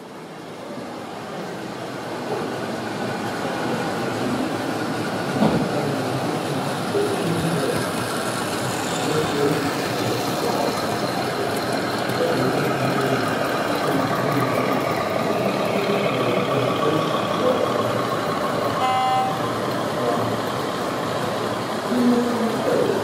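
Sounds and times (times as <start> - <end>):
short train toot: 18.8 - 19.5.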